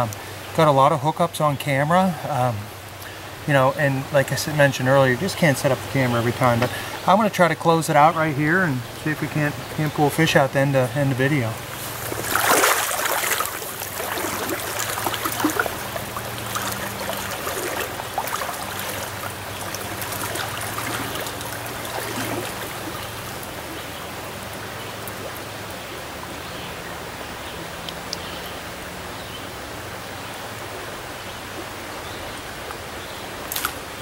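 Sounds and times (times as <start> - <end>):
stream rushing over riffles: 0.0 - 34.0
splashes from wading legs: 11.6 - 25.6, 33.4 - 34.0.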